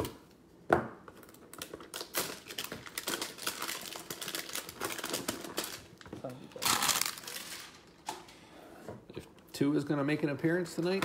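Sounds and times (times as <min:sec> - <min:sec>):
plastic wrap crinkling: 0:01.2 - 0:08.0.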